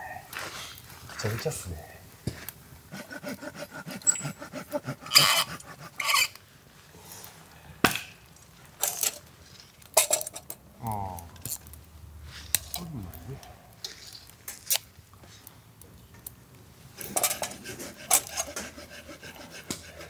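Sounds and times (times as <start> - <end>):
firewood knocking and scraping: 2.2 - 6.4.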